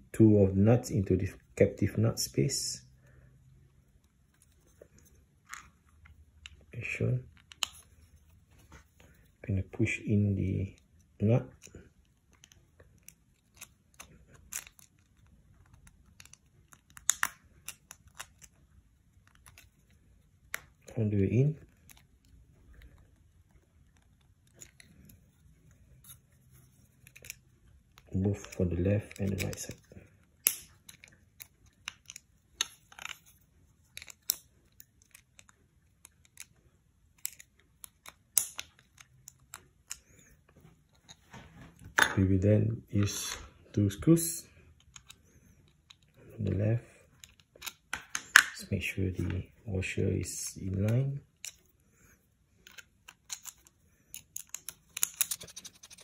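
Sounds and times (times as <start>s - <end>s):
plastic and metal parts clicking: 10.8s - 20.9s, 26.8s - 40.2s, 47.1s - 48.6s, 52.6s - 56.0s
plastic clicks and scrapes: 52.6s - 56.0s.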